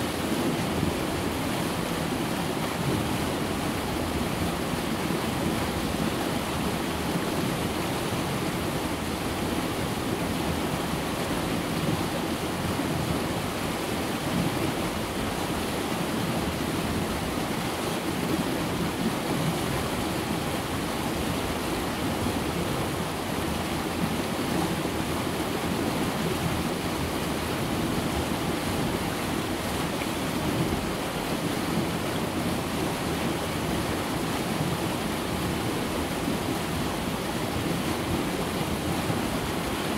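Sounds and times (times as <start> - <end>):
river rushing through rapids: 0.0 - 39.9.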